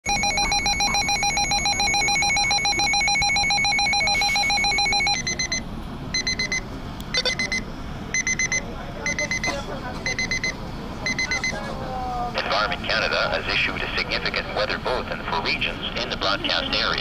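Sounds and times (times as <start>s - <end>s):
short high beeps: 0.1s - 5.6s
warbling electronic alarm tone: 0.1s - 5.6s.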